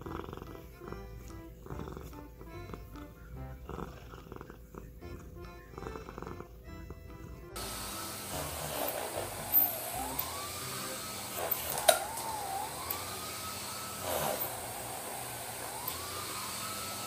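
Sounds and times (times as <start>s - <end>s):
siren wailing: 9.6s - 14.0s, 14.7s - 17.0s.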